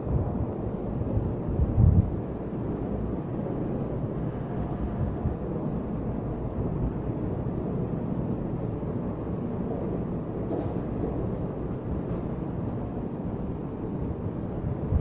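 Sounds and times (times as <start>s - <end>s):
air moving over microphone: 0.0s - 8.1s
electric fans rumbling: 0.0s - 15.0s.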